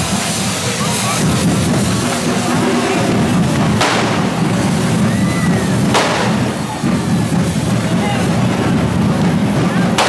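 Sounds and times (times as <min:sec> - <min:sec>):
fireworks hissing: 0:00.0 - 0:10.0
steady drumming: 0:00.0 - 0:10.0
sharp bangs: 0:01.2 - 0:07.6.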